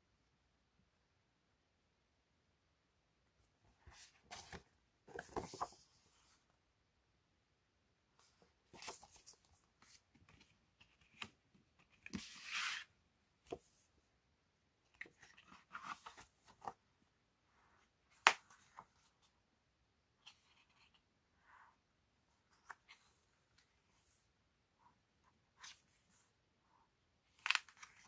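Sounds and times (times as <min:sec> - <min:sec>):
paper rustling and crinkling: 0:04.0 - 0:05.9.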